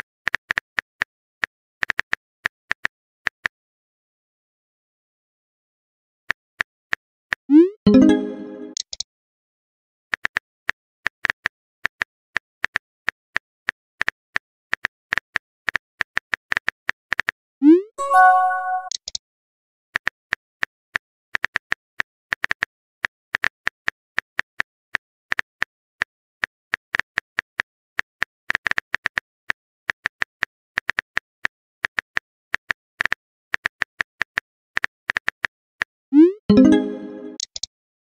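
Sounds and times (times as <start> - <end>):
message pop and chime: 7.9 - 8.8, 17.7 - 19.0, 36.2 - 37.4
phone keyboard clicks: 37.4 - 37.7.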